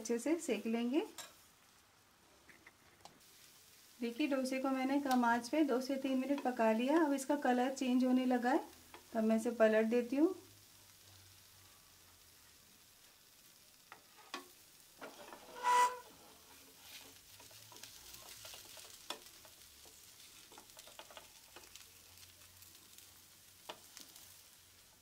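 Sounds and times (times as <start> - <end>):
dosa sizzling in a pan: 0.0 - 25.0
spatula and knife scraping: 15.0 - 16.2.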